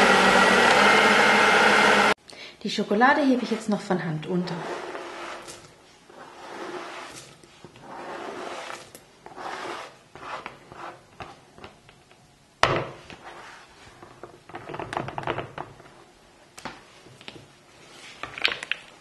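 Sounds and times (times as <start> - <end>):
spatula scraping cutting board: 3.2 - 11.5, 13.2 - 14.0
spatula stirring dough: 3.2 - 11.9.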